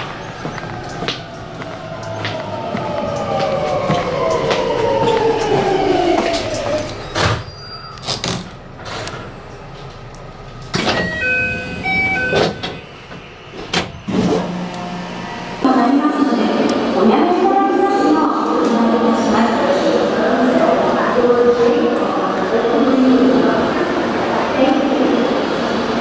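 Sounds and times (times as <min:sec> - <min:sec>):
electronic door chime: 0:10.8 - 0:12.9.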